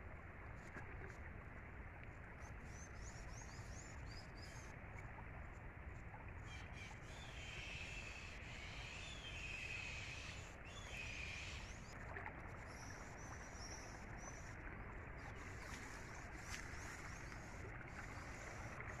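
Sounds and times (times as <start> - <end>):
floodwater rushing: 14.0 - 19.0.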